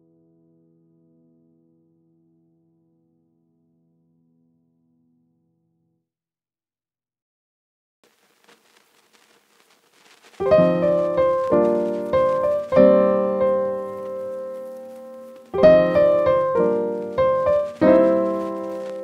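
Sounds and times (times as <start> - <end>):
piano chords: 10.4 - 19.0.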